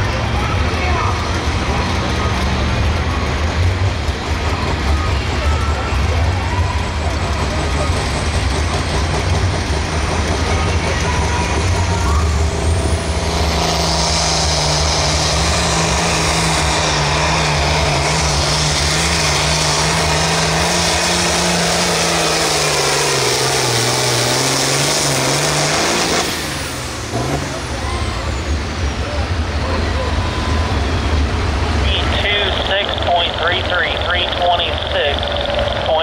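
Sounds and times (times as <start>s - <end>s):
tractor diesel engine rumbling: 0.0s - 36.0s
turbo whine: 31.8s - 36.0s.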